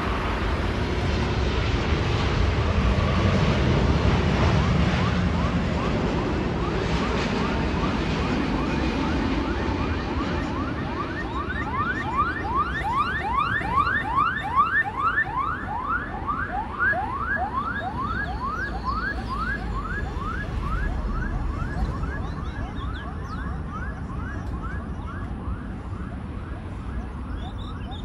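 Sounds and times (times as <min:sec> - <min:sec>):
jet engines rumbling: 0:00.0 - 0:28.0
rising chirps: 0:17.6 - 0:24.4.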